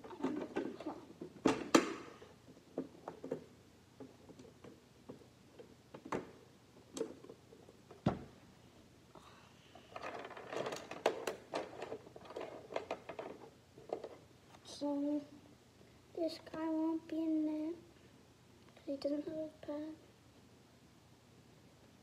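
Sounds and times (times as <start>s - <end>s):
plastic toy pieces rummaged: 9.9s - 14.1s.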